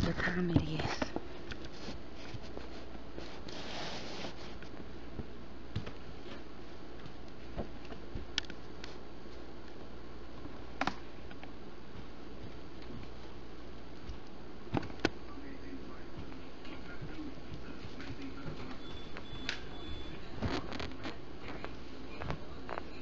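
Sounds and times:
low room hum and hiss: 0.0 - 23.0
faint clicks and taps: 4.6 - 15.2.

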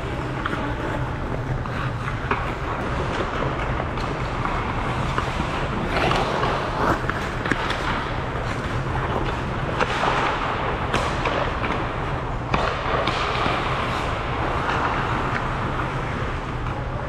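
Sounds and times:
skates scraping ice: 0.0 - 17.0
steady low hum: 0.0 - 17.0
sticks and puck clacking: 0.0 - 17.0.

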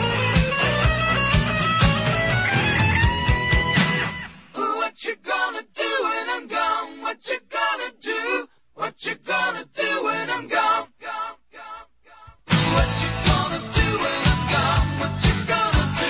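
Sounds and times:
person singing a cappella: 4.6 - 16.0.

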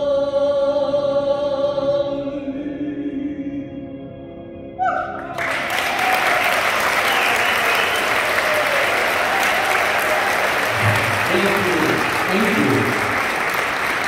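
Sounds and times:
audience applause: 5.3 - 14.0.

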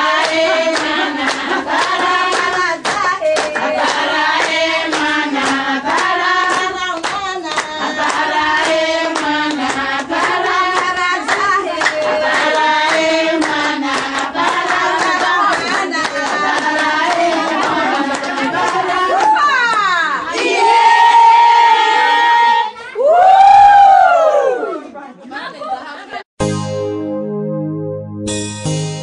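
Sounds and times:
women singing together: 0.0 - 22.7
hand clapping: 0.2 - 19.9.

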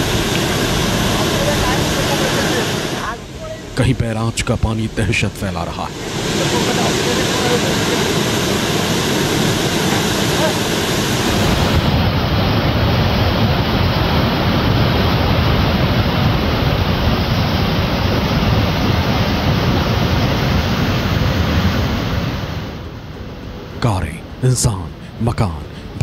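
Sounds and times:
floodwater rushing: 5.6 - 15.4.

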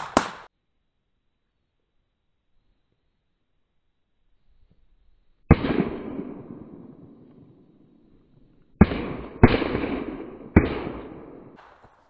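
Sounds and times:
shotgun shots with echo: 0.0 - 0.5, 5.5 - 7.0, 8.8 - 11.9.

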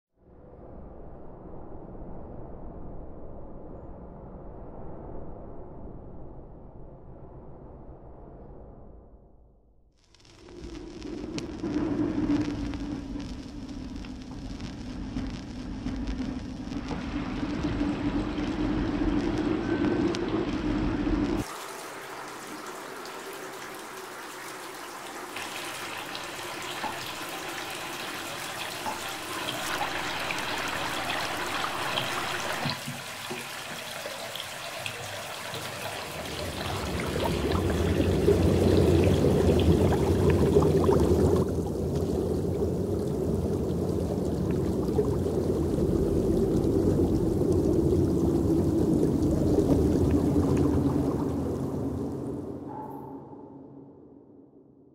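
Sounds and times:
muffled underwater rumble: 10.3 - 21.5, 36.1 - 52.9
bathwater pouring and trickling: 16.8 - 52.7.

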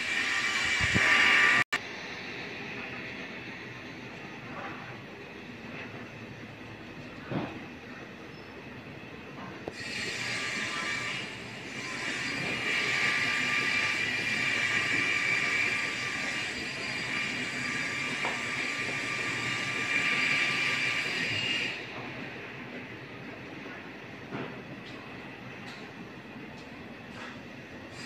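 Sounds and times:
mechanical hiss with high whine: 0.0 - 4.5.

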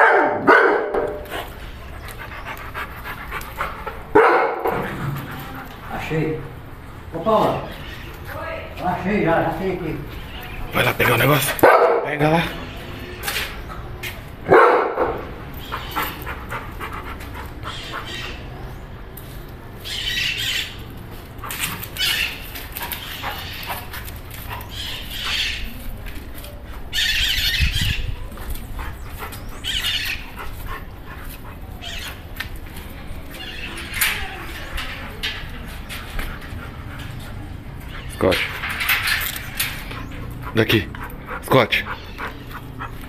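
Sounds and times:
dog barking: 0.0 - 1.4, 4.1 - 4.8, 11.6 - 12.2, 14.5 - 15.3
dogs squealing: 15.0 - 18.7, 19.8 - 25.9, 26.9 - 28.2, 28.8 - 32.3, 36.5 - 43.0.

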